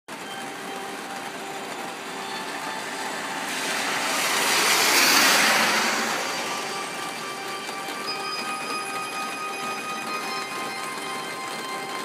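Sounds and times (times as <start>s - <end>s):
steady rain: 0.1s - 12.0s
car tyres hissing on wet road: 1.8s - 8.9s.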